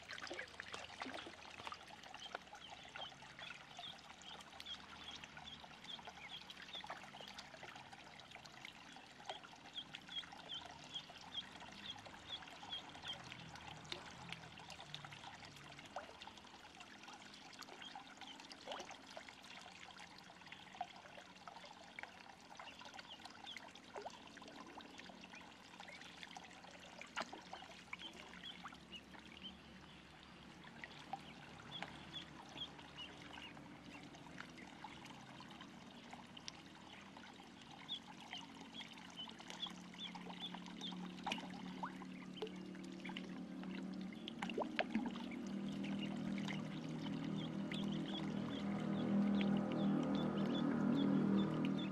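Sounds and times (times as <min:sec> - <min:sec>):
water trickling into a pond: 0:00.0 - 0:51.9
ducklings peeping: 0:09.7 - 0:13.2, 0:31.2 - 0:34.0, 0:45.8 - 0:51.9
light splashing: 0:30.0 - 0:51.9.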